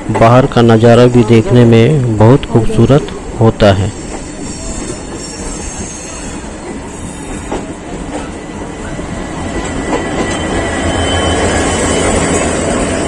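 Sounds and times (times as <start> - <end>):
diesel locomotive passing: 0.0 - 13.0
train wheels clattering on rails: 3.9 - 13.0.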